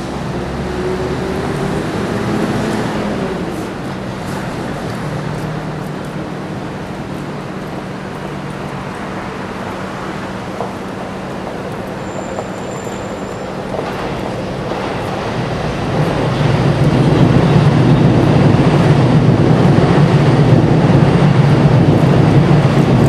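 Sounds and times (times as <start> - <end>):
traffic noise: 0.0 - 23.0.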